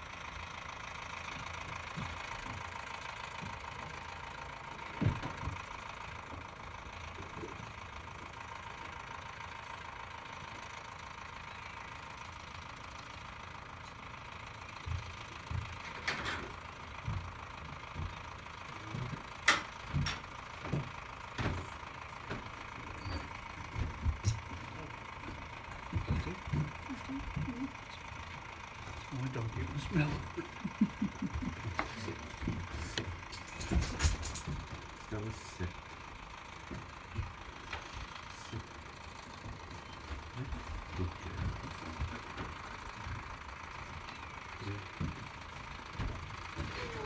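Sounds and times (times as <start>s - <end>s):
tractor engine idling: 0.0s - 47.0s
short knocks and thumps: 19.9s - 24.7s, 25.3s - 27.6s.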